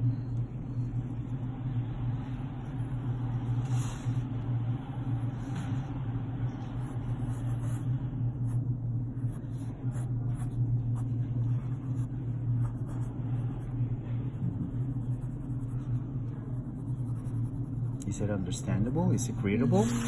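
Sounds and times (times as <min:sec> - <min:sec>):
steady low hum: 0:00.0 - 0:20.0
pencil scratching on paper: 0:14.4 - 0:18.0.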